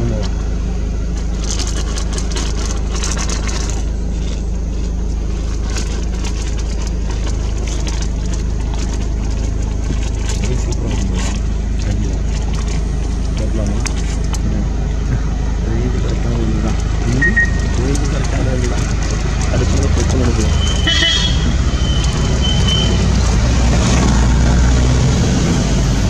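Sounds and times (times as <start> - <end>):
engine idling: 0.0 - 26.0
faint clicks and rustles: 1.1 - 14.5, 16.0 - 24.2.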